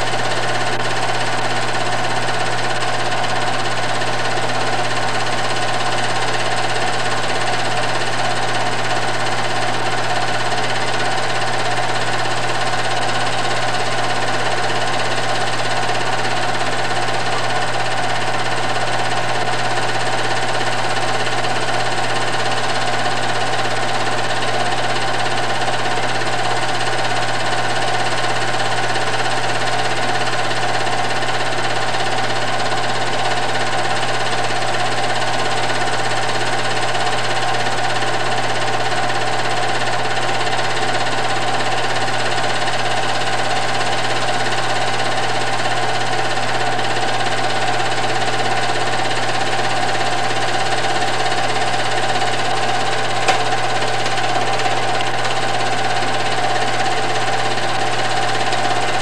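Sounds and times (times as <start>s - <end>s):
film projector whir and clatter: 0.0s - 59.0s
sharp click: 53.2s - 54.2s.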